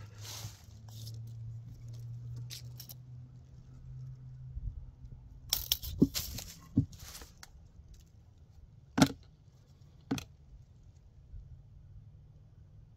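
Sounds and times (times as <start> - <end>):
tape measure retracting and snapping: 0.9 - 3.0, 5.5 - 6.7.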